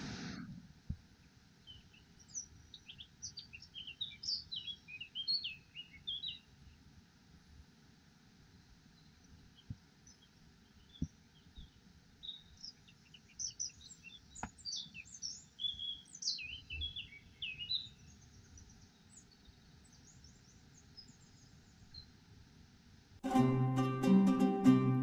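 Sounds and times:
small birds chirping: 1.2 - 6.9, 8.5 - 22.3.

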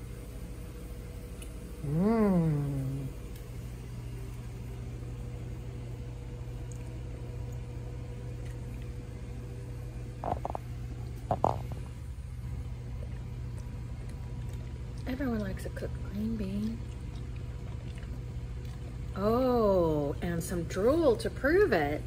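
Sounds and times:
steady low hum: 0.0 - 22.0
dog chewing and smacking: 12.7 - 19.1.

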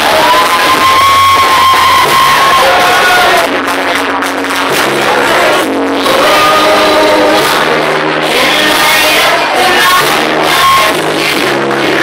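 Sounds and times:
long held cry: 0.0 - 3.6
crowd cheering and shouting: 0.0 - 12.0.

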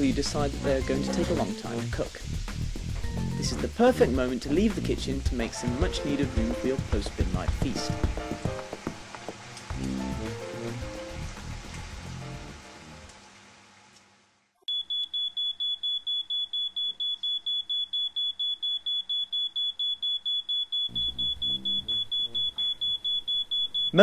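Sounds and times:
background music: 0.0 - 13.1
smoke alarm beeping: 14.7 - 24.0.

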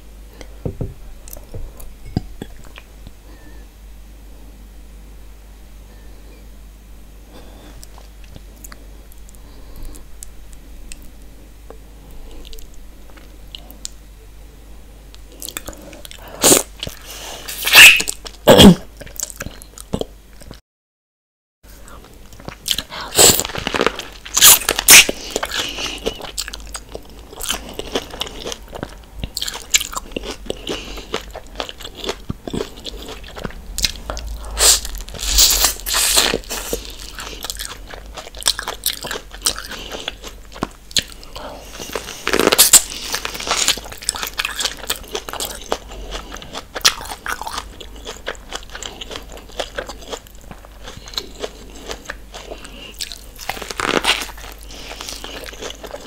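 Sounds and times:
chewing: 21.9 - 56.0
corn cob crunching bites: 41.9 - 56.0.

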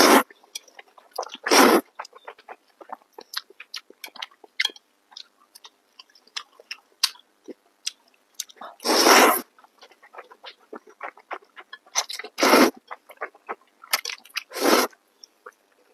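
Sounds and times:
wet chewing clicks: 0.3 - 8.6, 9.4 - 15.8
man slurping noodles: 1.4 - 1.8, 8.8 - 9.5, 12.4 - 12.8, 14.5 - 15.0.

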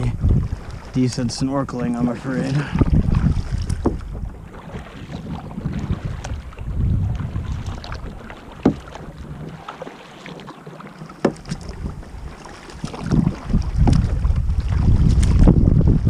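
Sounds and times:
wind noise on microphone: 0.0 - 8.3, 11.4 - 16.0
paddle in water: 0.0 - 16.0
sharp knocks: 3.7 - 4.0, 8.6 - 8.9.

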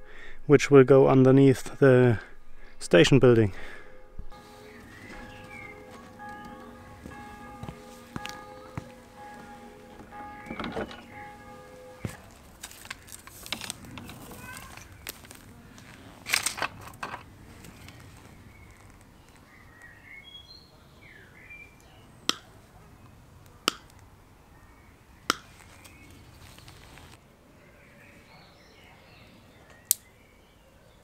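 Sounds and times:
faint bird chirp: 4.4 - 12.3
cable rustling over gravel: 12.1 - 19.5, 25.5 - 27.2.

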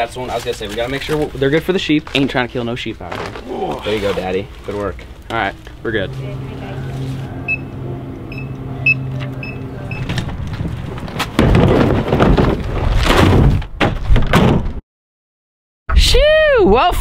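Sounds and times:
steady hum: 4.4 - 11.8
short high beeps: 6.4 - 10.2
rubber tank thumping and scraping: 10.3 - 14.8.

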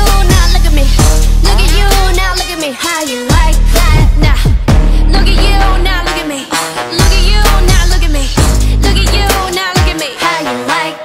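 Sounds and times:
deep kick drums: 0.0 - 2.2, 3.3 - 5.6, 7.0 - 9.2
music with deep bass: 0.0 - 11.0.

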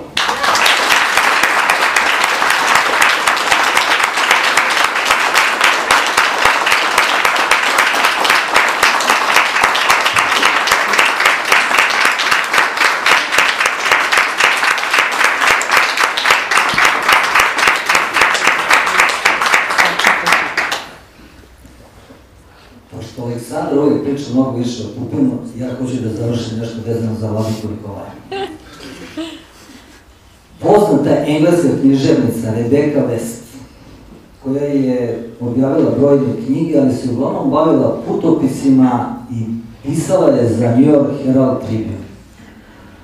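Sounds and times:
audience applauding: 0.0 - 21.0.

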